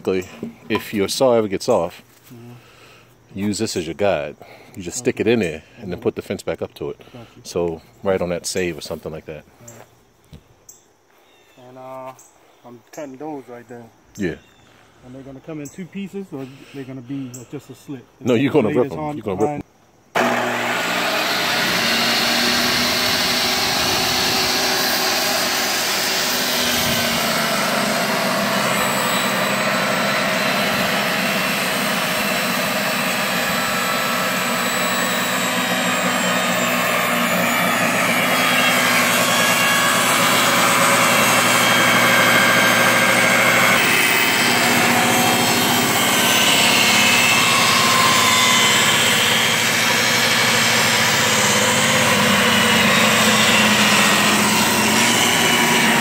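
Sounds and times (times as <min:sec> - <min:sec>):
table saw cutting wood: 0:00.0 - 0:01.9, 0:20.1 - 0:56.0.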